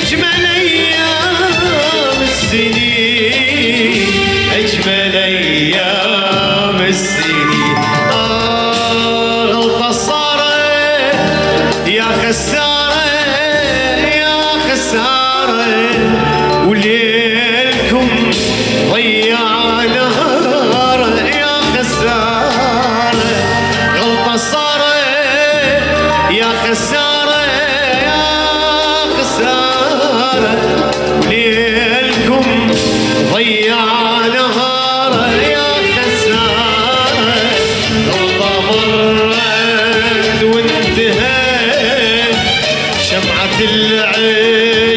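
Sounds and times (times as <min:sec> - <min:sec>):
electronic keyboard: 0:00.0 - 0:44.9
man singing: 0:00.0 - 0:44.9.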